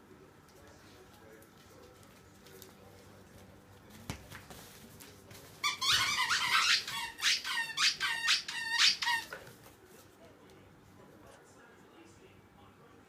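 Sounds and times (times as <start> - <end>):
squeaky dog toy squeaking: 5.6 - 9.4.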